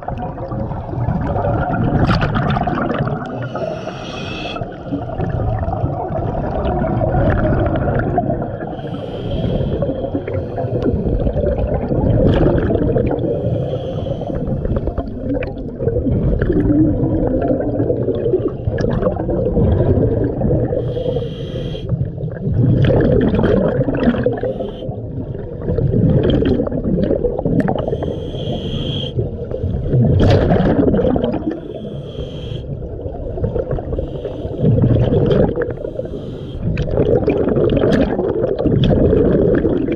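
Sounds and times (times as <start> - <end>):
bubbling exhalations: 0.0 - 21.2, 21.9 - 31.9, 32.7 - 39.9
diver breathing through regulator: 3.3 - 4.8, 8.6 - 11.4, 13.1 - 15.2, 20.7 - 22.1, 24.0 - 25.1, 27.7 - 30.2, 31.4 - 32.9, 33.8 - 35.0, 35.6 - 36.9.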